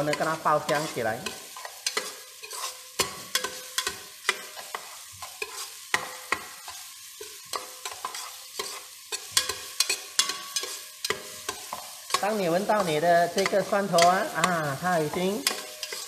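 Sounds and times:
garlic sizzling in hot oil: 0.0 - 16.0
spatula scraping a metal pot: 0.1 - 16.0.

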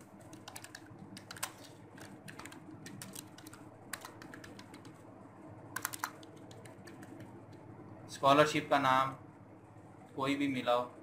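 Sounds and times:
computer keyboard typing: 0.1 - 5.0, 5.8 - 7.6.

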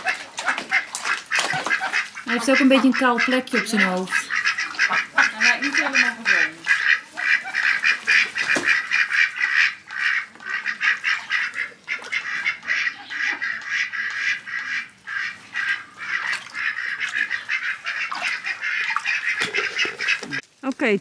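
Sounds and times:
ducks quacking: 0.0 - 20.4.

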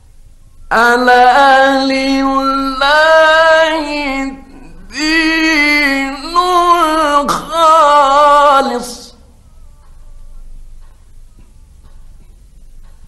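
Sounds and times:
man reciting melodically: 0.6 - 9.4.

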